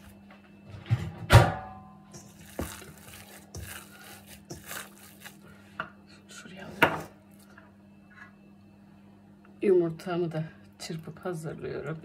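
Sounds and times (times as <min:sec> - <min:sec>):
faint steady hum: 0:00.0 - 0:12.0
dough knocking and scraping in bowl: 0:02.1 - 0:05.4.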